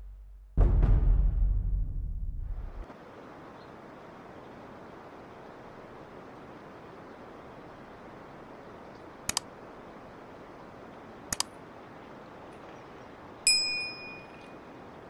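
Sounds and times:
river water rushing: 2.9s - 15.0s
bright bell ding: 13.5s - 14.6s.

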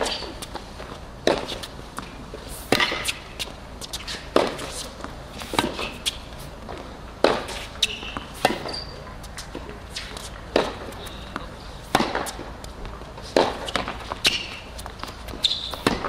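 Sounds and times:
sneaker squeaks: 0.0s - 0.5s, 2.7s - 6.3s, 7.4s - 12.4s, 13.3s - 16.0s
tennis ball bouncing: 0.0s - 16.0s
tennis racquet hitting ball: 1.2s - 6.3s, 7.2s - 12.5s, 13.2s - 16.0s.

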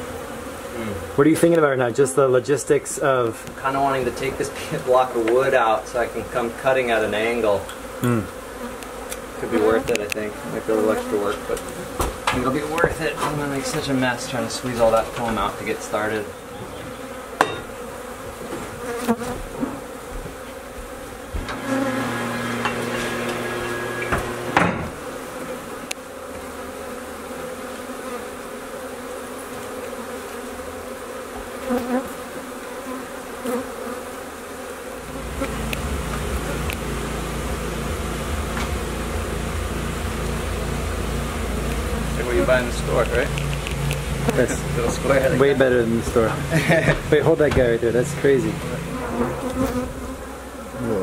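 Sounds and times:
honey bees buzzing: 0.0s - 51.0s
sharp knocks: 22.6s - 25.0s.

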